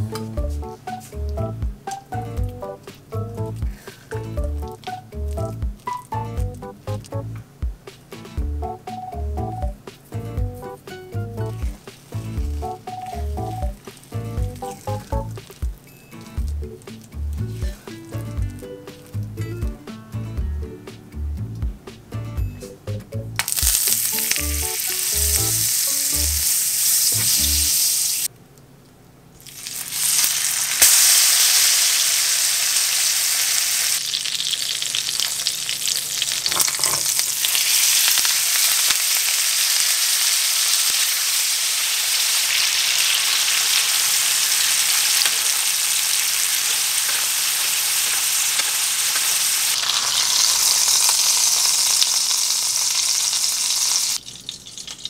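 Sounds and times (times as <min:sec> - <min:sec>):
steak searing with loud sizzle: 0:12.1 - 0:18.3, 0:23.4 - 0:28.3, 0:29.4 - 0:55.0
butter and oil sizzling in a pan: 0:23.4 - 0:28.3, 0:29.4 - 0:55.0.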